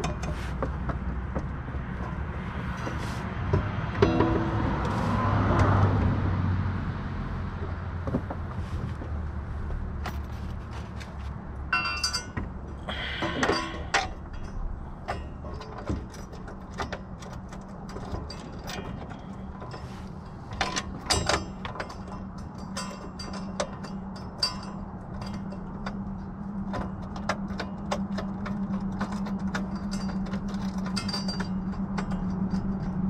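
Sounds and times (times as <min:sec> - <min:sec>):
scraping rustle: 0:00.1 - 0:01.1, 0:01.9 - 0:05.4, 0:08.3 - 0:11.4, 0:13.0 - 0:22.0
metallic clinks of tools and bolts: 0:11.7 - 0:26.1, 0:26.8 - 0:33.0.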